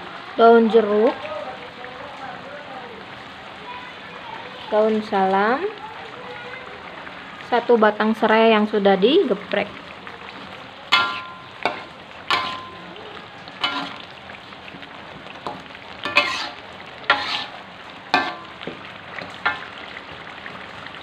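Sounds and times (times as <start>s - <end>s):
paste sizzling in oil: 9.1s - 21.0s
metal spatula clanking on a wok: 10.9s - 12.9s, 13.5s - 14.1s, 15.4s - 17.5s, 18.1s - 18.7s, 19.4s - 19.7s.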